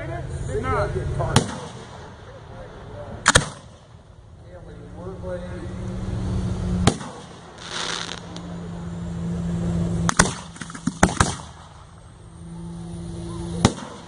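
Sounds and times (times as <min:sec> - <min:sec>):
low hum: 0:00.0 - 0:14.0
firework hiss: 0:05.8 - 0:08.6
firework shells bursting: 0:06.8 - 0:08.6, 0:10.0 - 0:12.0.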